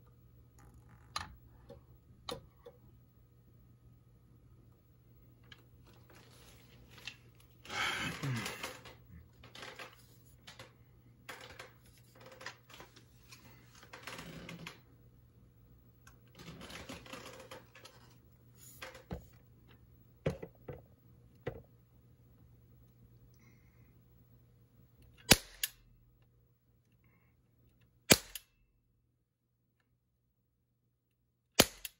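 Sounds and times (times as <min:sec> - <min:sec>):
air rifle handling rustle and clatter: 0:05.4 - 0:07.6, 0:08.2 - 0:14.8, 0:16.4 - 0:19.4.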